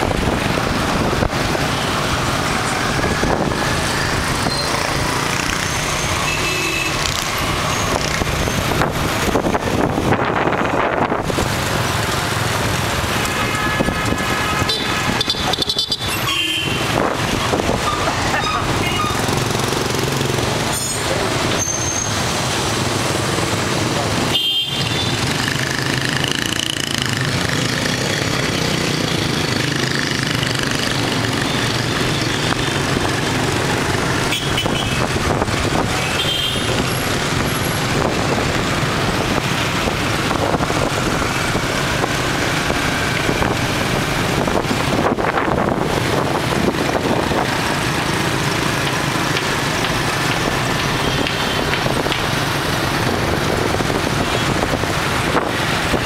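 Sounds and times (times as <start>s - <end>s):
motorbike engine and road noise: 0.0s - 56.0s
street traffic: 0.0s - 56.0s
motorbike horn toots: 13.3s - 16.8s, 24.3s - 25.2s
wind on microphone: 34.6s - 47.9s, 50.4s - 56.0s.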